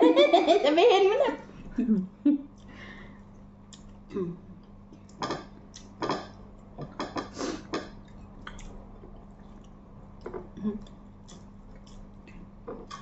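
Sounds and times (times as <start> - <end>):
faint steady hum: 0.0 - 13.0
chewing and lip smacks: 8.0 - 13.0.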